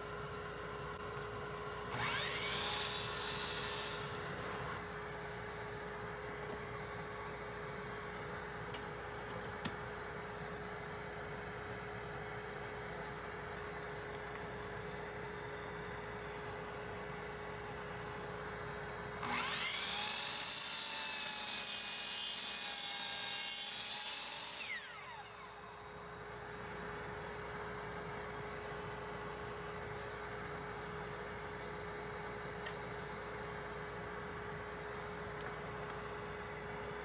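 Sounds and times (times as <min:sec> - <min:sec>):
miter saw motor whine: 0:01.1 - 0:07.0, 0:17.8 - 0:27.8
saw blade cutting wood: 0:01.9 - 0:04.8, 0:19.2 - 0:25.6
steady background hum: 0:23.5 - 0:37.0.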